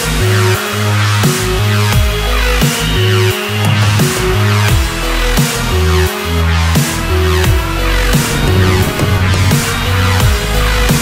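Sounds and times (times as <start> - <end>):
electronic music with heavy bass: 8.2 - 11.0.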